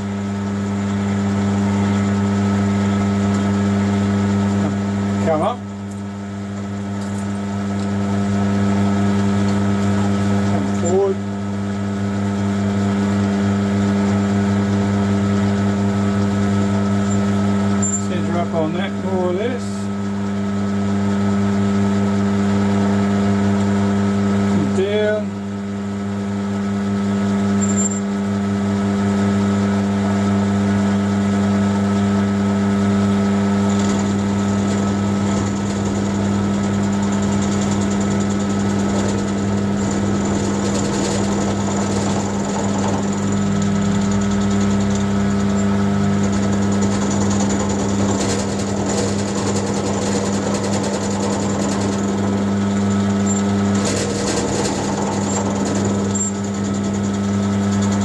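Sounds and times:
electric motor humming: 0.0 - 58.0
cutter milling steel: 11.9 - 19.9, 32.4 - 58.0.

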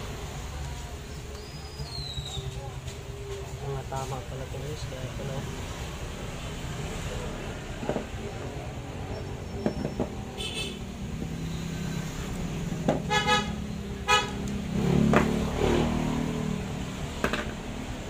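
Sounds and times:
vehicle horn beeps: 10.4 - 10.9, 13.1 - 14.4.

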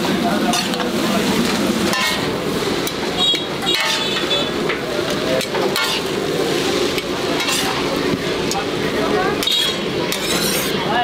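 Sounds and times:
noodles sizzling on metal pan: 0.0 - 11.0
spatulas scraping and tossing: 0.4 - 4.8, 5.4 - 8.0, 9.4 - 10.8
spatula clinking on pan: 3.7 - 4.3.

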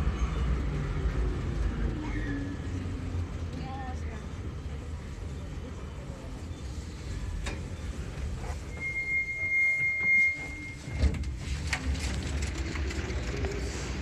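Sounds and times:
low rumble of metro car: 0.0 - 14.0
high whine of train doors: 6.6 - 14.0.

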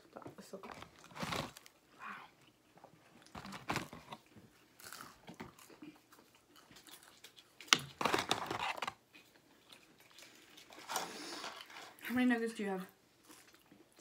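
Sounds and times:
chewing and biting food: 2.4 - 8.0, 8.6 - 12.0.

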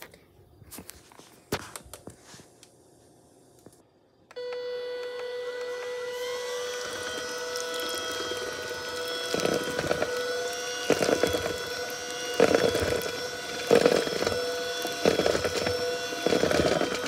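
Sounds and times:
electric hand mixer whining: 4.3 - 17.0
mixer rattle: 5.4 - 17.0.

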